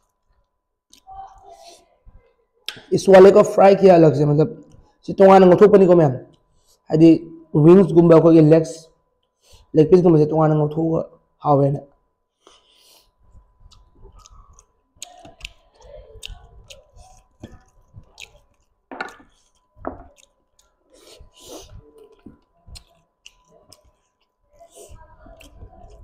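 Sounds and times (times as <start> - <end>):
wet chewing smacks and clicks: 13.6 - 26.0.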